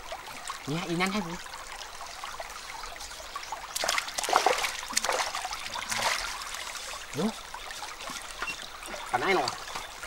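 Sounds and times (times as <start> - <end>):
stream trickling: 0.0 - 10.0
splashing in water: 3.7 - 6.9.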